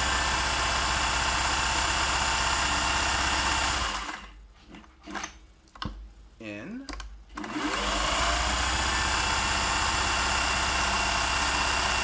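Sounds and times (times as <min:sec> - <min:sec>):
sewing machine running: 0:00.0 - 0:04.3, 0:07.4 - 0:12.0.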